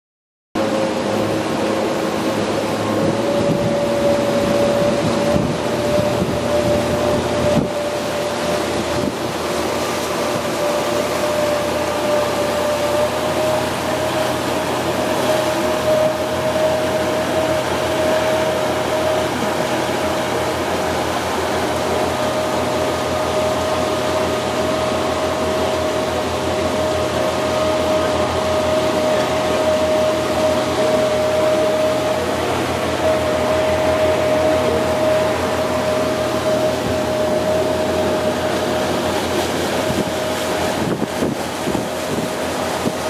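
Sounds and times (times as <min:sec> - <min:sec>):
outboard engines droning: 0:00.6 - 0:43.0
wind and water rushing: 0:00.6 - 0:43.0.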